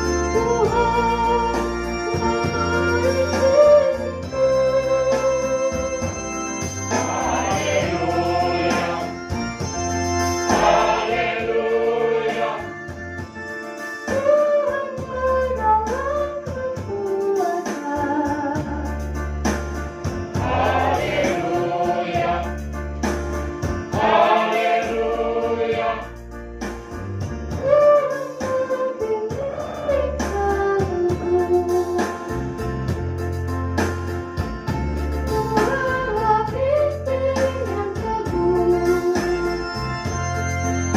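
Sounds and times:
low accompaniment: 0.0 - 17.2, 18.1 - 27.8
mixed choir singing: 6.9 - 9.2, 10.5 - 12.8, 20.4 - 22.6, 23.9 - 26.2, 29.4 - 30.2.

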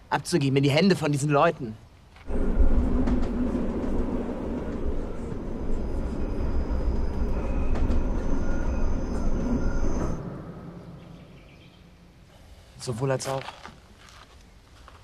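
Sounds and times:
steady low rumble: 2.2 - 12.6
faint thin high whines: 2.2 - 12.8.

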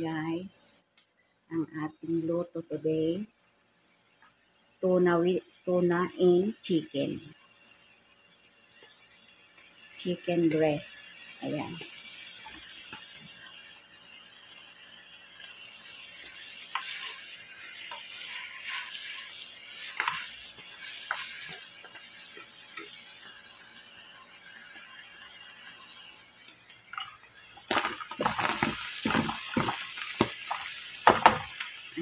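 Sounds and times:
food sizzling: 0.0 - 32.0
spatula scraping a wok: 16.1 - 23.4.

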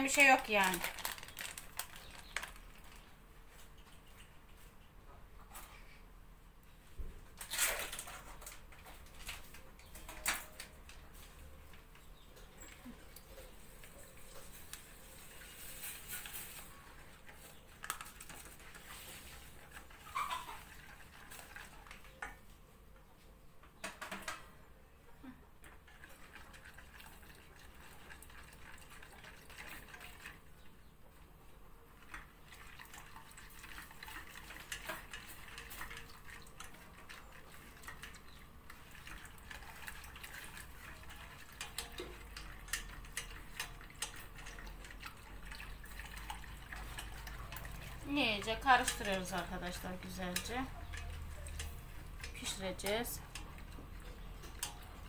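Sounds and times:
whisk stirring liquid in a pot: 13.2 - 22.5, 25.8 - 30.7, 31.9 - 55.0
whisk tapping against a pot: 40.3 - 55.0.

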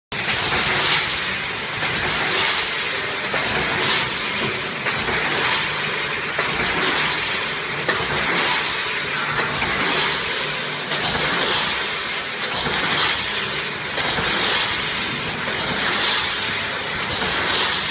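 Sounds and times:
production line machinery din: 0.1 - 17.9
machine hiss: 0.2 - 17.9.

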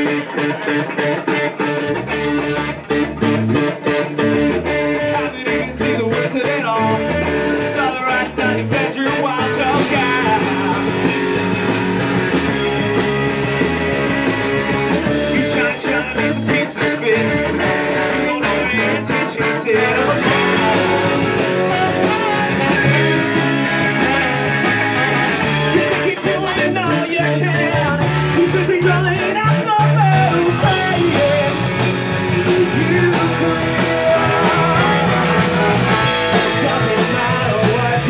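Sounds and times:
ska punk band playing live: 0.0 - 38.0
person singing: 4.6 - 11.4, 15.0 - 38.0.

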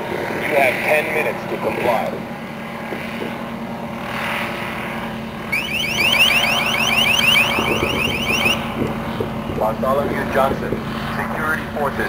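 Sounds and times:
drone engine and rotor hum: 0.0 - 12.0
warbling alert tone chirps: 5.5 - 8.6.

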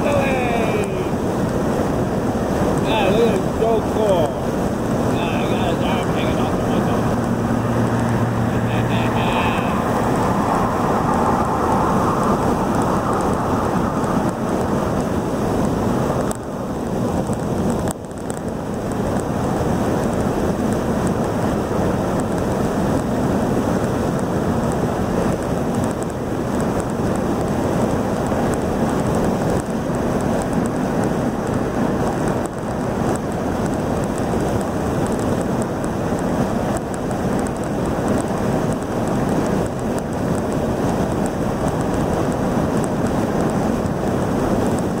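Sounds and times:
wind and tyre noise in car: 0.0 - 45.0.

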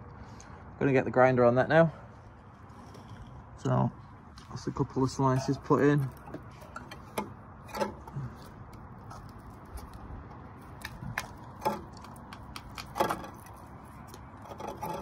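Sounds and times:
light metallic clicks and knocks: 6.0 - 10.0.

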